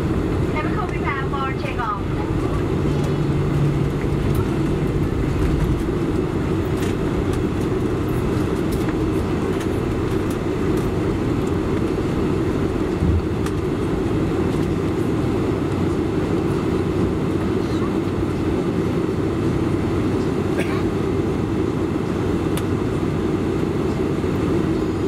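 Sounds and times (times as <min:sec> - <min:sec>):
aircraft cabin engine rumble: 0:00.0 - 0:25.0.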